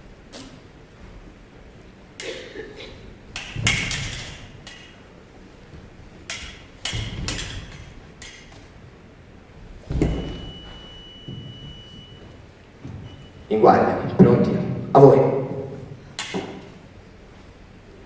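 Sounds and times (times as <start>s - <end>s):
fencing blades clashing: 3.2s - 5.2s, 6.2s - 8.8s, 9.9s - 12.2s, 16.1s - 16.8s
lunge thump: 6.3s - 8.7s, 9.8s - 11.5s
feet stamping on stage: 9.6s - 13.4s
scoring machine beep: 10.1s - 12.4s, 13.0s - 13.5s.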